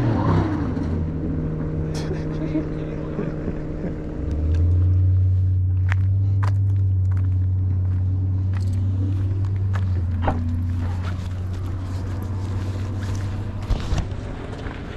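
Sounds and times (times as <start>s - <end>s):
car engine idling: 0.6s - 14.9s
footsteps: 4.3s - 14.9s.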